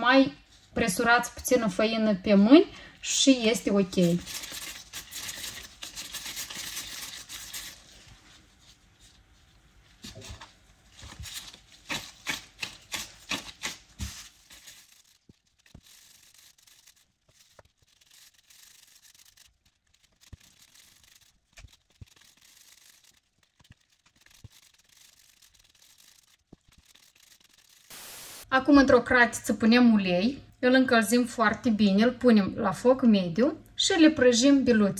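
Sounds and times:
hands rubbing and patting dough: 0:03.6 - 0:28.0.

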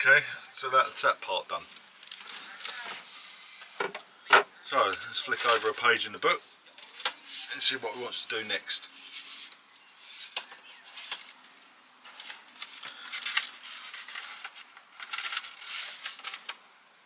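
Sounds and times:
paper booklet pages rustling: 0:12.0 - 0:16.7.

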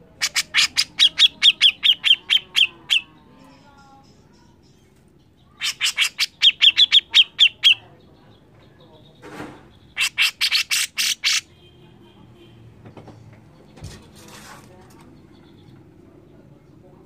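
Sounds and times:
bird harsh chattering calls: 0:00.0 - 0:03.2, 0:05.3 - 0:08.0, 0:09.6 - 0:11.5.

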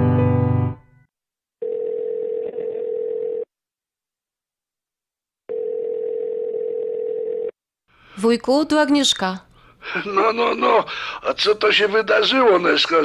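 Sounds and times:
telephone ringback tone: 0:01.6 - 0:03.5, 0:05.5 - 0:07.5.

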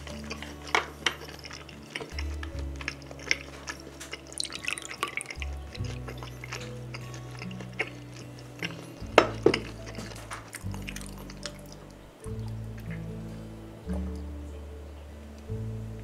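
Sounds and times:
liquid pouring into glass: 0:00.0 - 0:11.8
background music: 0:00.0 - 0:16.0.

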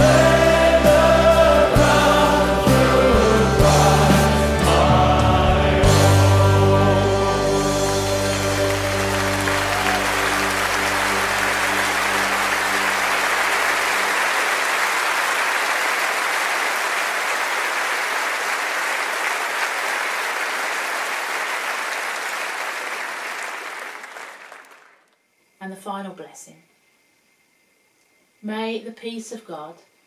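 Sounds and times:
held music chord: 0:00.0 - 0:14.7
audience applauding: 0:07.0 - 0:25.1.

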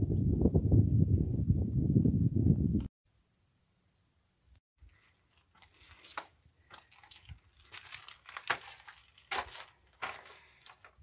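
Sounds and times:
footsteps crunching on gravel: 0:05.0 - 0:11.0.

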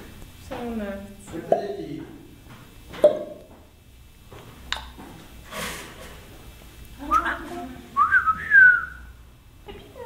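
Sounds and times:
parrot whistle sliding up and down: 0:08.0 - 0:09.1.

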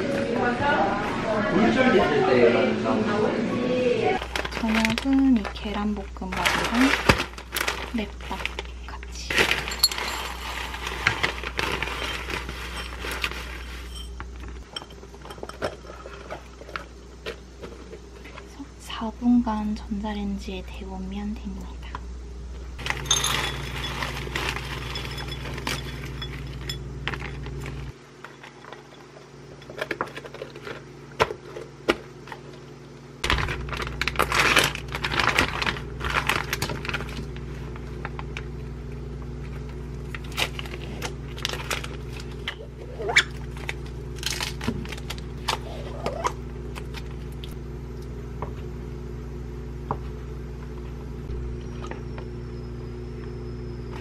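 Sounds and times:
steady low hum: 0:00.0 - 0:54.0
plastic wrapper crinkling: 0:04.2 - 0:13.9, 0:22.8 - 0:26.2, 0:33.2 - 0:38.4, 0:40.0 - 0:45.9.

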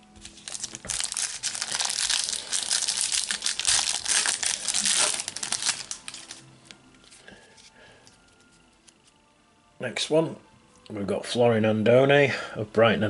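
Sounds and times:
foil packet crinkling: 0:00.2 - 0:07.7.

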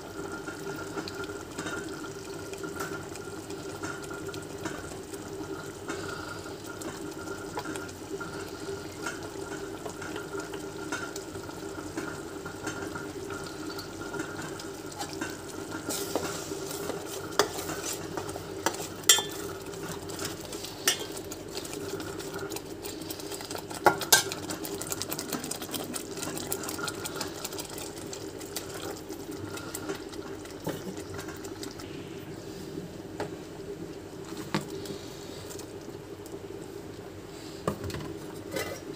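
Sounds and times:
gravy simmering and bubbling: 0:00.0 - 0:38.9
steady low hum: 0:25.9 - 0:37.6.

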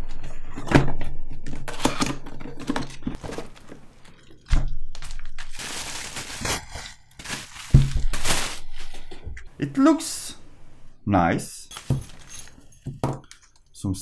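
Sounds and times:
bubble wrap crinkling: 0:03.2 - 0:09.1.

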